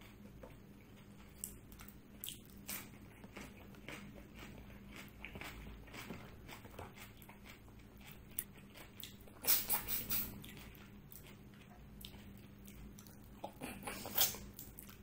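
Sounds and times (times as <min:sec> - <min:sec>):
chewing food: 0:00.0 - 0:15.0.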